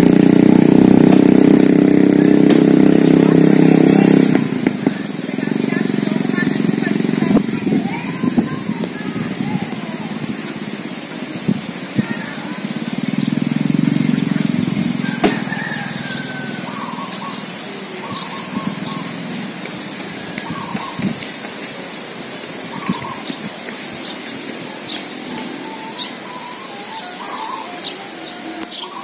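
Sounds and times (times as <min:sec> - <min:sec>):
kite hummer droning: 0:00.0 - 0:29.0
bird chirps: 0:12.0 - 0:29.0.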